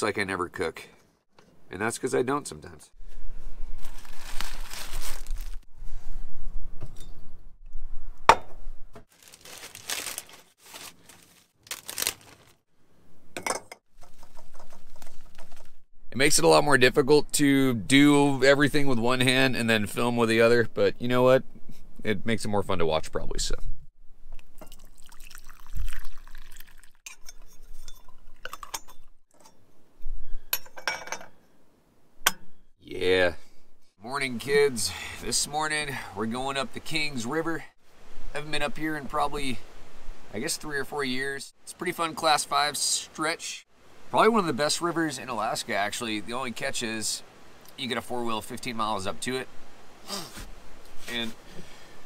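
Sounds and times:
crinkling and rustling: 0:03.1 - 0:05.7, 0:09.0 - 0:12.6, 0:13.9 - 0:15.9
liquid sounds: 0:24.3 - 0:29.2
dishes and utensils clinking: 0:30.6 - 0:31.4.

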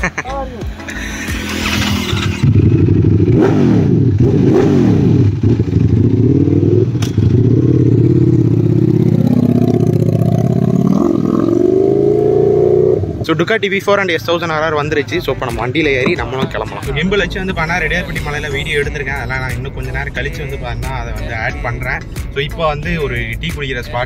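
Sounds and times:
motorcycle engine revving: 0:00.8 - 0:13.2.

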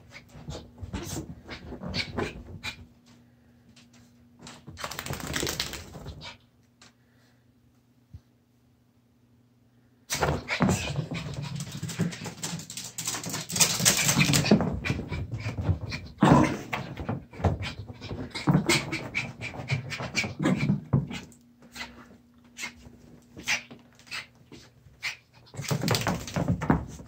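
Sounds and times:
dog scuffling and thumping: 0:10.1 - 0:21.3, 0:25.5 - 0:27.0.

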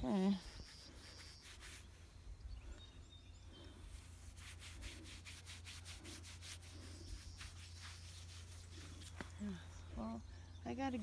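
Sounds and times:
rubbing against animal fur: 0:00.1 - 0:02.0, 0:03.9 - 0:09.4.

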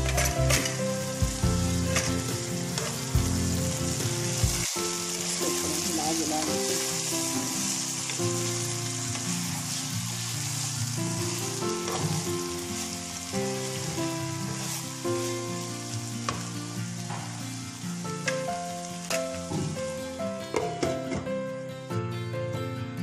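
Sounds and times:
vegetables sizzling in oil: 0:00.0 - 0:20.8
spatula scraping on pan: 0:11.7 - 0:12.3.

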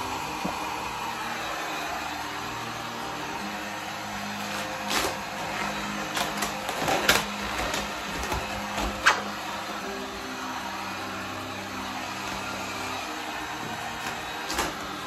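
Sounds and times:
background music: 0:00.0 - 0:15.0
heat gun blowing: 0:00.0 - 0:15.0
vinyl film crackling: 0:04.3 - 0:09.3.

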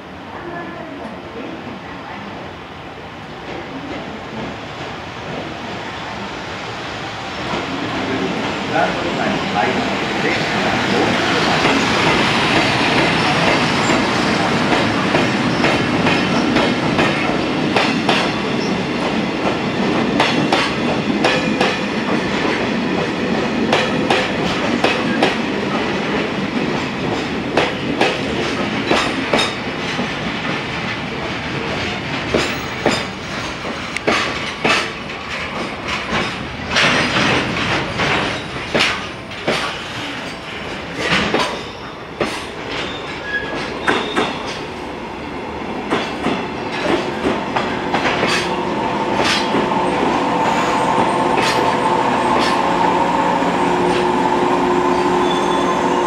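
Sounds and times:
freight train rolling past: 0:00.0 - 0:56.0.

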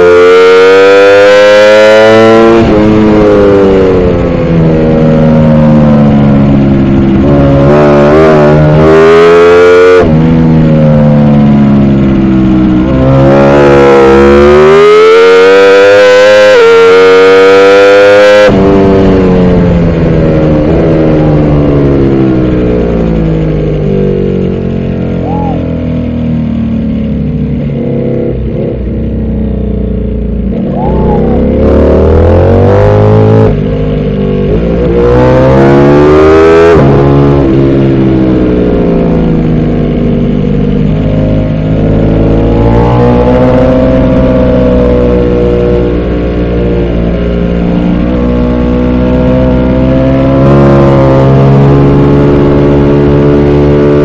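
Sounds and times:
motorcycle engine under race load: 0:00.0 - 0:54.0.

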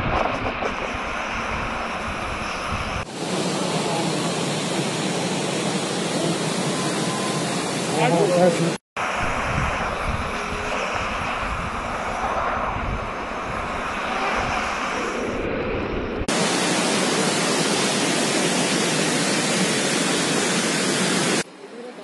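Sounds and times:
wind buffeting microphone: 0:00.0 - 0:03.1, 0:09.0 - 0:16.3
steady hiss: 0:00.4 - 0:15.4, 0:16.3 - 0:22.0.

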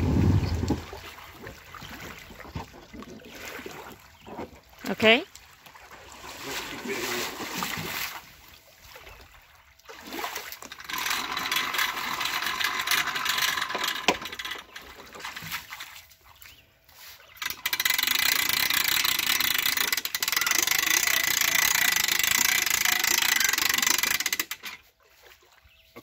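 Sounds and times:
water splashing around wading legs: 0:00.0 - 0:11.5, 0:14.7 - 0:17.4, 0:24.8 - 0:26.0
hand-cranked winch ratcheting: 0:10.6 - 0:15.5, 0:17.4 - 0:24.8.

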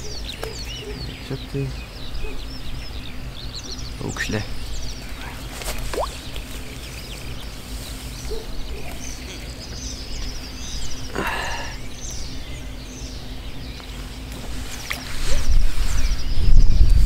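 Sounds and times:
small birds chirping: 0:00.0 - 0:17.0
wind rumble on microphone: 0:11.9 - 0:17.0.

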